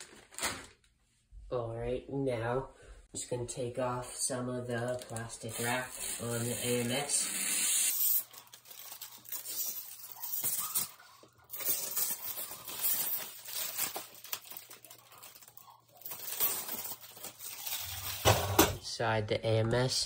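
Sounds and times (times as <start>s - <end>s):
plastic wrap crinkling and tearing: 0.0s - 0.9s, 4.9s - 18.4s.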